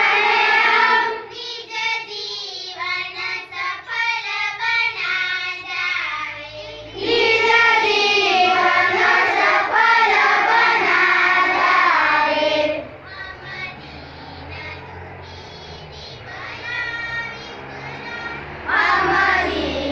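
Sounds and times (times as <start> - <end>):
children singing in unison: 0.0 - 19.9.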